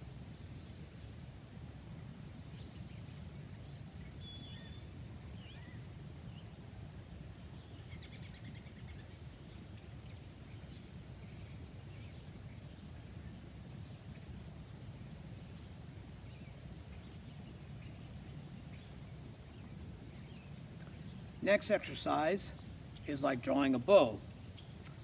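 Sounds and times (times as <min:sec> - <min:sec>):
faint bird chirps: 0:02.6 - 0:13.0.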